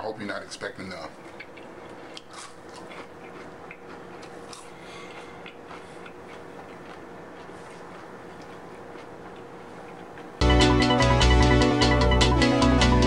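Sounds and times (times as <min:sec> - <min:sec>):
faint steady hum: 0:00.0 - 0:13.0
person chewing food: 0:01.2 - 0:10.4
small crunches and clicks: 0:01.3 - 0:10.3.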